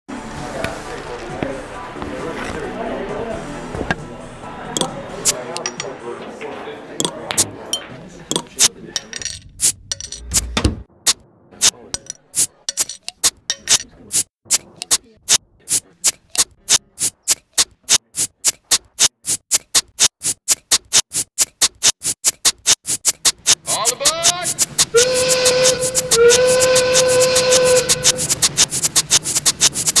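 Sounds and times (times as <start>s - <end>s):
glass bottles clinking: 5.6s - 6.0s, 7.8s - 10.3s
whistle blasts: 24.9s - 28.4s.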